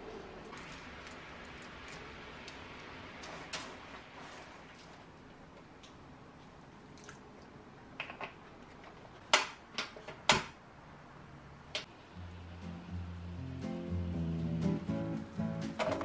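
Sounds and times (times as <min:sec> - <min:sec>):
soft background music: 0:12.1 - 0:16.0.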